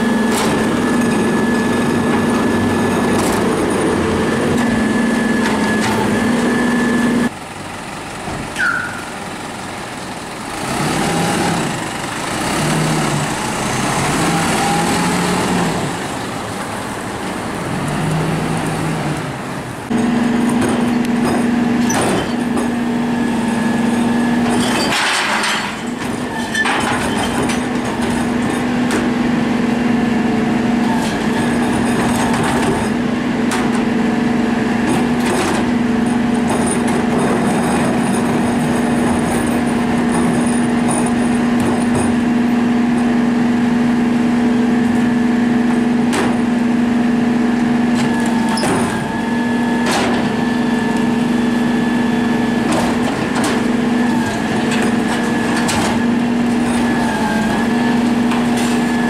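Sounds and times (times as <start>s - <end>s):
garbage truck engine idling: 0.0s - 10.6s.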